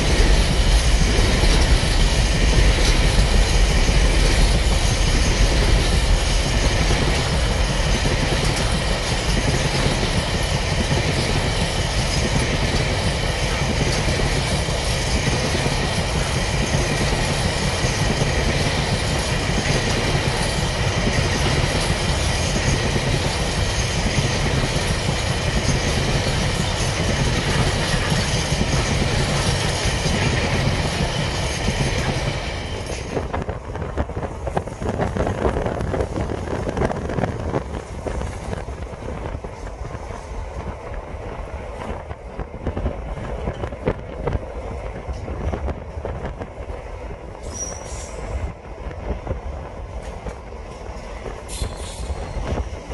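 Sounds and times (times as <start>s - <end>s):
train wheels rumbling: 0.0s - 52.9s
wind noise on microphone: 0.0s - 52.9s.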